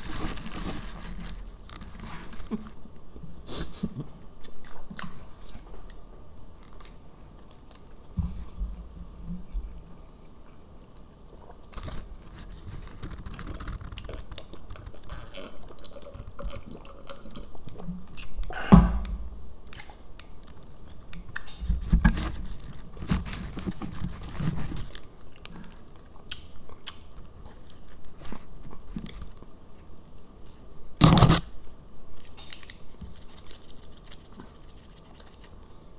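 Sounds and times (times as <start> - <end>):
paper wrappers crinkling: 0.0 - 2.6, 11.8 - 15.0.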